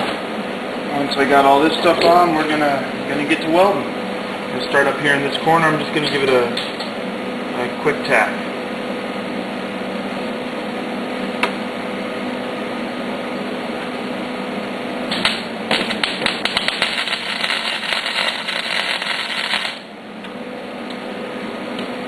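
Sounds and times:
welding arc crackling: 0:15.0 - 0:20.0.

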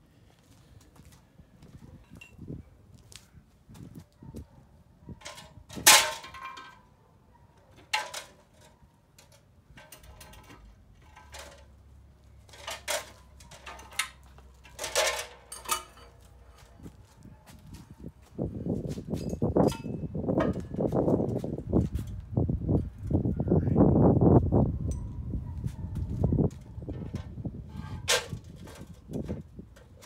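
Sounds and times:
metal clanks with ringing: 0:14.7 - 0:16.2, 0:19.2 - 0:20.6.

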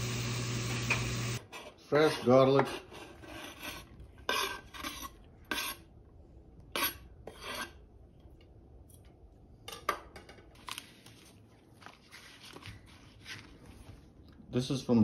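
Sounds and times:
knife scraping on cutting board: 0:01.4 - 0:05.9, 0:06.8 - 0:07.8.

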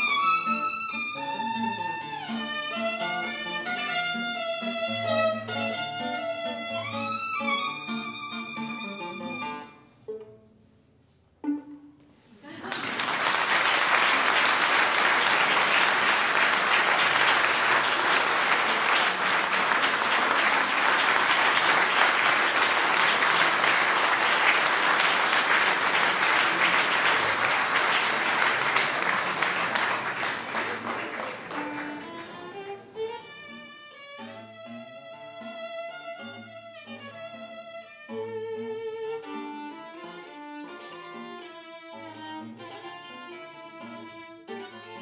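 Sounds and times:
audience applauding: 0:12.4 - 0:32.6.

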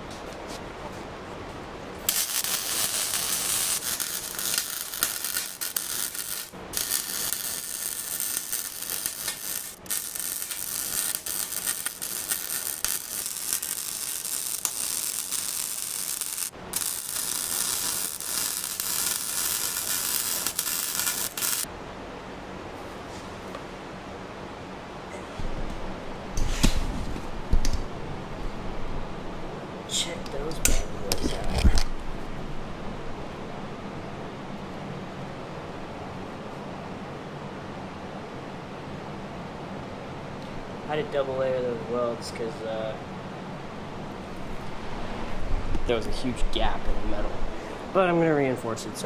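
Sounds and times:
welding arc crackling: 0:02.0 - 0:21.7.

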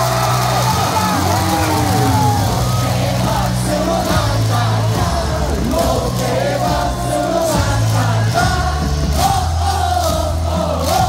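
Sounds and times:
crowd singing a cheer song: 0:00.0 - 0:11.0
loud music over loudspeakers: 0:00.0 - 0:11.0.

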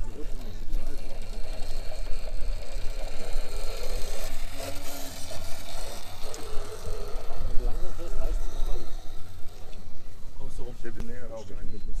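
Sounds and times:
electric motor and gears whining: 0:00.0 - 0:12.0.

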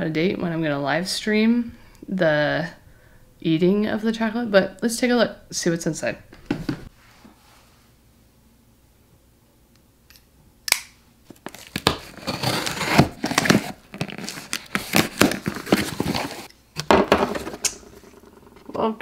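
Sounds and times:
packing tape ripping: 0:10.7 - 0:16.5
cardboard flaps crinkling: 0:11.3 - 0:16.5.

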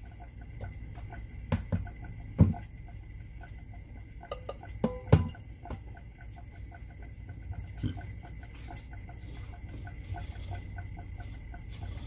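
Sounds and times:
steady low hum: 0:00.0 - 0:12.0
plastic bucket knocking: 0:01.5 - 0:02.6.

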